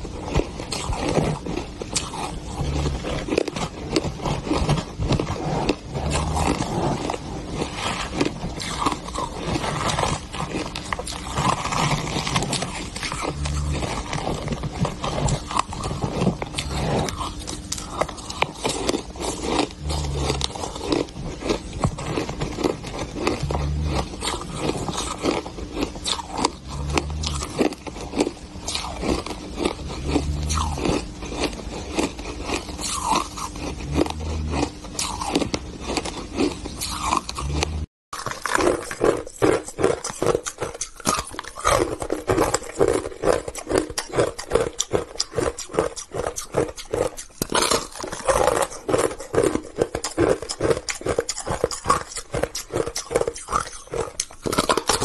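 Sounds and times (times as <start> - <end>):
ice crunching between teeth: 0.0 - 55.0.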